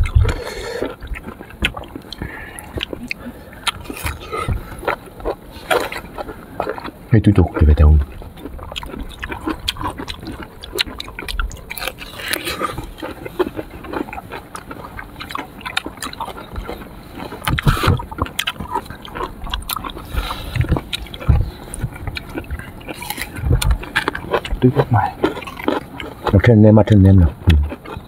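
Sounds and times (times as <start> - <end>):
wet chewing and lip-smacking: 0.0 - 28.0.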